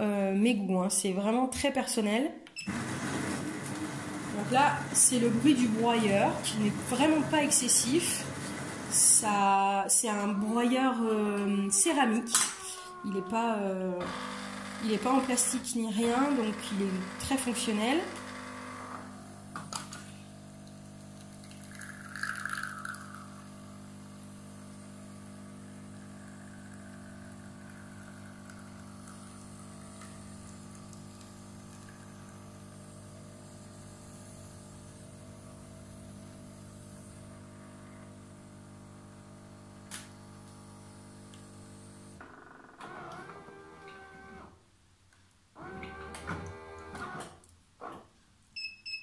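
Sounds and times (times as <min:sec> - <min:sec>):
espresso machine pump humming: 0:02.7 - 0:09.2, 0:14.0 - 0:42.2
espresso machine hiss: 0:16.2 - 0:19.6, 0:20.2 - 0:42.1
coffee streaming into cup: 0:20.5 - 0:33.9.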